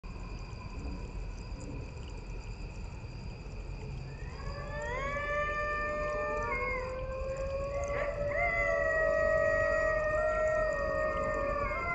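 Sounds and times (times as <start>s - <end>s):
night insects chorus: 0.0s - 11.9s
coyotes howling: 4.0s - 11.9s.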